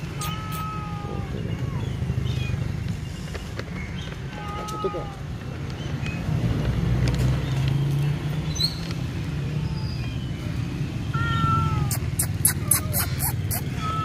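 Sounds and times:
cats meowing: 0:00.0 - 0:02.4, 0:04.3 - 0:05.4, 0:11.1 - 0:14.0.

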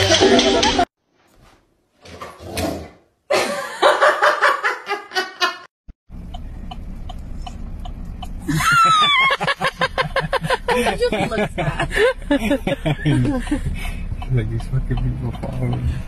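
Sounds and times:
person laughing: 0:06.7 - 0:16.0.

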